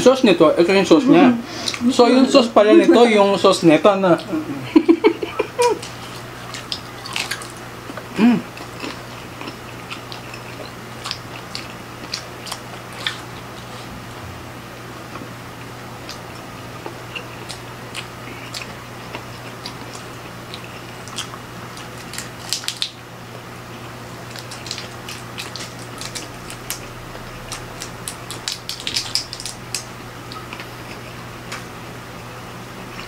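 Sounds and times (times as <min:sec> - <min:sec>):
chewing: 0:05.6 - 0:13.9, 0:16.0 - 0:23.0, 0:23.7 - 0:31.6
shrimp shells cracking: 0:21.1 - 0:23.0, 0:24.3 - 0:29.9.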